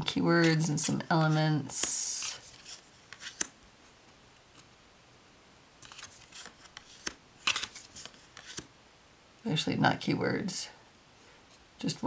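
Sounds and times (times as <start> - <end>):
cards clicking and scraping: 0.4 - 3.6, 5.8 - 8.7.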